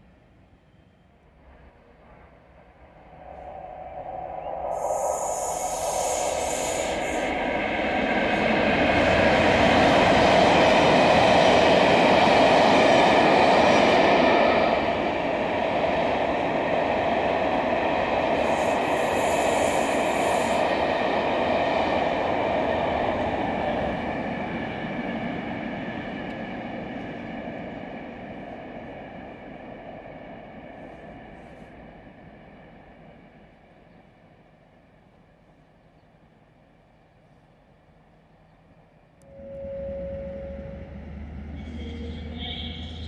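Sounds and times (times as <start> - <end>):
diesel locomotive engine: 0.0 - 43.0
train wheels rumbling on rails: 1.4 - 34.0, 39.3 - 43.0
high wheel squeal: 39.3 - 43.0.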